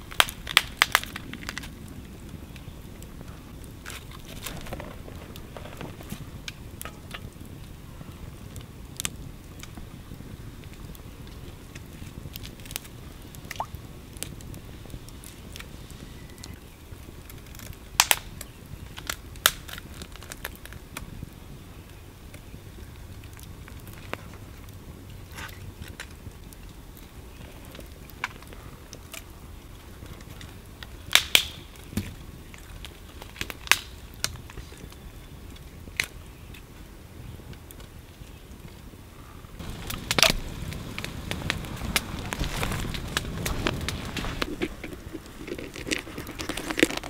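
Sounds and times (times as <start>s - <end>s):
sharp pops of fire: 0.0s - 21.4s, 22.2s - 47.0s
campfire crackling: 0.0s - 47.0s
loud snaps of fire: 0.0s - 47.0s.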